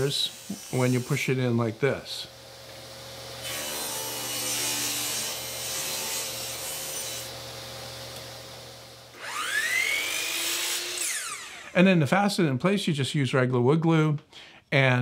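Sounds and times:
miter saw motor whining: 9.1 - 11.8.

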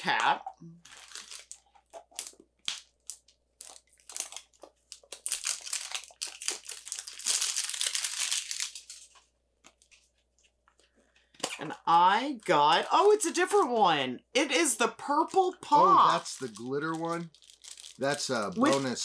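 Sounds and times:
plastic wrapper crinkling: 0.8 - 10.1, 16.0 - 19.0.

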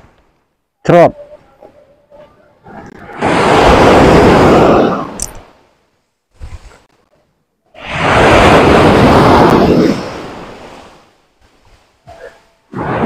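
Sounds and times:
surf breaking on beach: 3.2 - 5.2, 7.8 - 11.6.

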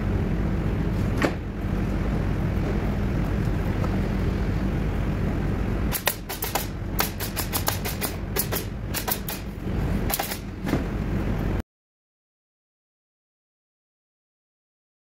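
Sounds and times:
pneumatic nailer firing: 5.9 - 10.9.

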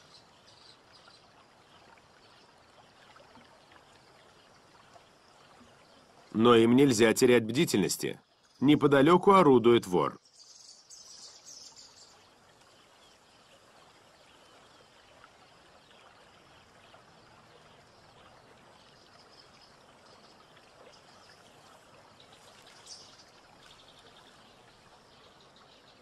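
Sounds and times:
running water: 0.0 - 26.0.

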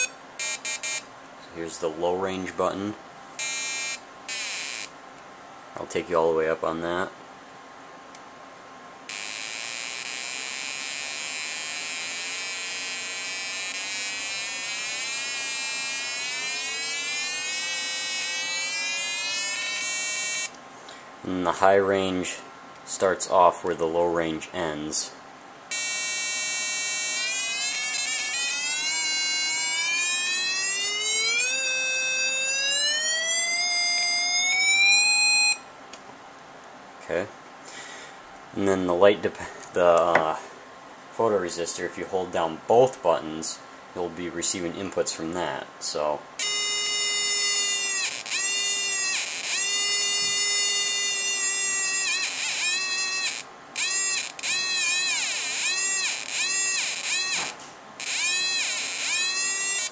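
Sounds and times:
buzzy electronic tone rising: 0.0 - 0.6, 9.1 - 20.5, 25.7 - 35.6, 46.4 - 59.9.

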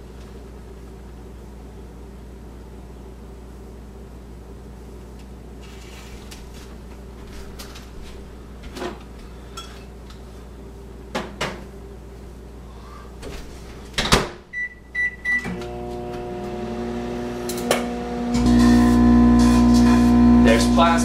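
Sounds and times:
keypad beeps: 14.6 - 15.5.

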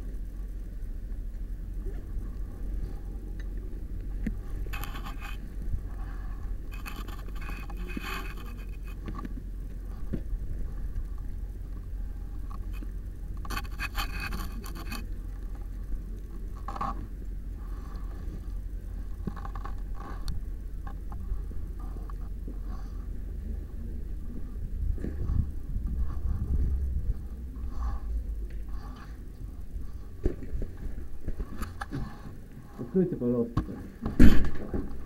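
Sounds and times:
steady low hum: 0.0 - 35.0
camera handling scraping and rustling: 4.7 - 5.5, 6.7 - 9.3, 12.5 - 15.1.

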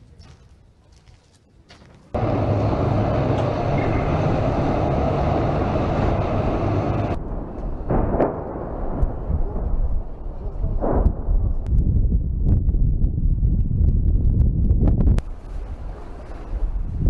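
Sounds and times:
armoured vehicle engine and tracks: 2.1 - 11.7, 14.4 - 17.0
wind buffeting microphone: 2.2 - 17.0.

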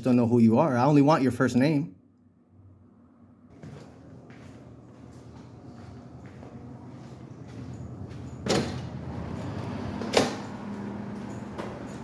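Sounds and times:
street noise: 5.1 - 12.0.

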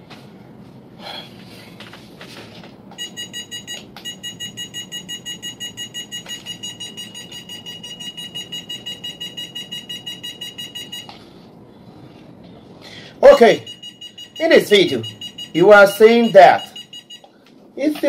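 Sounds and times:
fast high electronic beeping: 3.0 - 11.1, 13.2 - 17.3.

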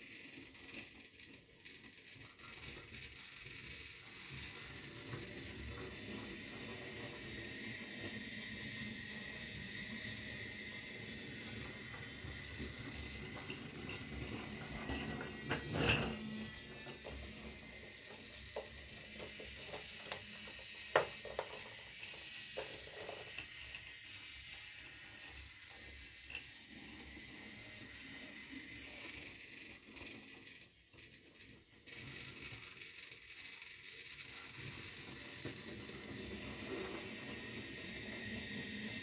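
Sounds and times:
toy train whir: 0.0 - 39.0.

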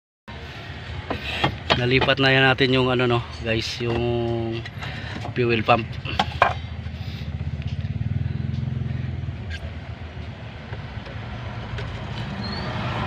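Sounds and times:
vehicle engine running: 3.2 - 13.0.

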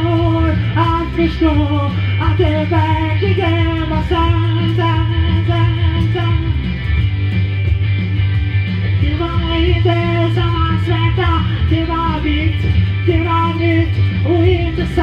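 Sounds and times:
person singing: 0.0 - 6.8, 9.0 - 15.0
electric guitar: 0.0 - 15.0.

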